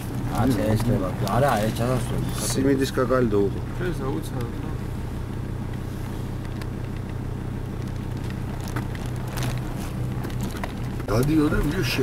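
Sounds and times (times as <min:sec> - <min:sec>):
car engine running: 0:00.0 - 0:12.0
road noise: 0:00.0 - 0:12.0.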